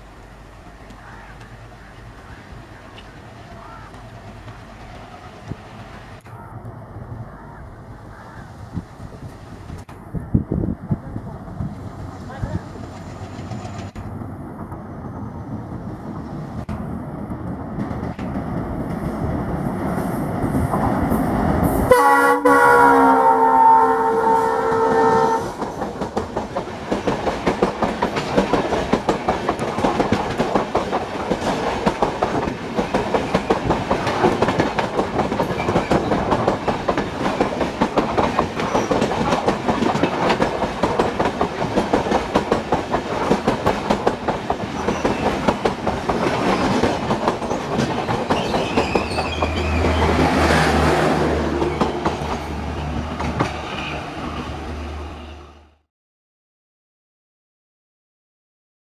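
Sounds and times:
train wheels clattering over rails: 0:25.5 - 0:54.0.

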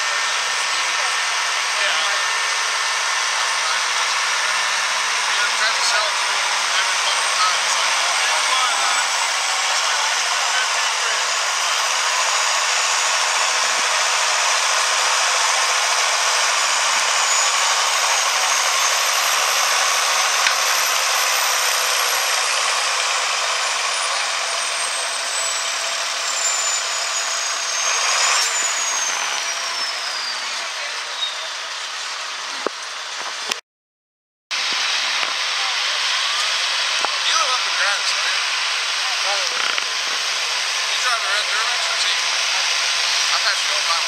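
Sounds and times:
diesel tractor engine at full load: 0:00.0 - 0:33.6, 0:34.5 - 0:44.0
thin high whine: 0:00.1 - 0:31.6.

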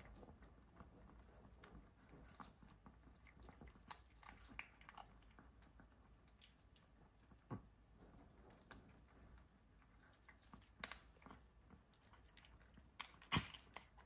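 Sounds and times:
dogs crunching dry kibble: 0:00.0 - 0:14.0.

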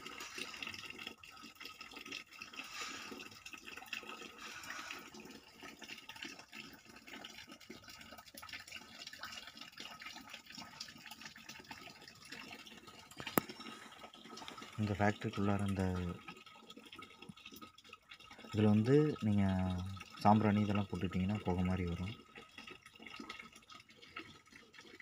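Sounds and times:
small water drips: 0:00.0 - 0:25.0.

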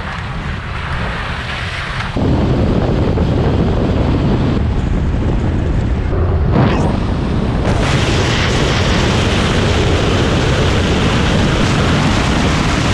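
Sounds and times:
road noise: 0:00.0 - 0:12.9
wind buffeting microphone: 0:00.0 - 0:12.9.

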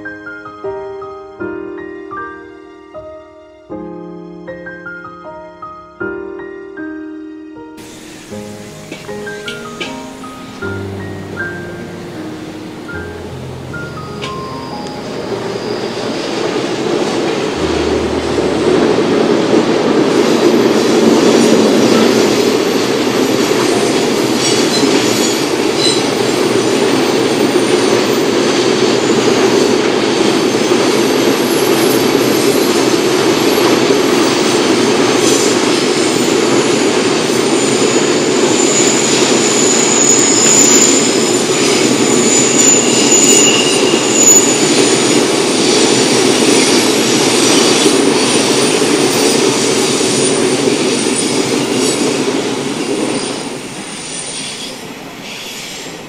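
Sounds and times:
train wheels rumbling on rail: 0:07.8 - 0:56.0
high-pitched wheel squeal: 0:14.2 - 0:16.9, 0:37.5 - 0:45.3.

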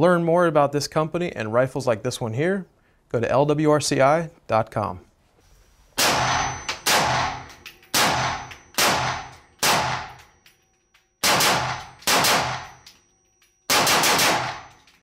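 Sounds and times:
rifle shots echoing: 0:06.0 - 0:10.3, 0:11.2 - 0:12.8, 0:13.7 - 0:14.9.

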